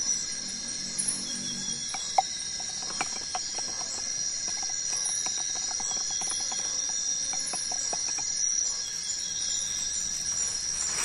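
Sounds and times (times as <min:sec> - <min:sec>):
forest insects droning: 0:00.0 - 0:11.0
stick tapping in coconut shell: 0:01.9 - 0:08.4.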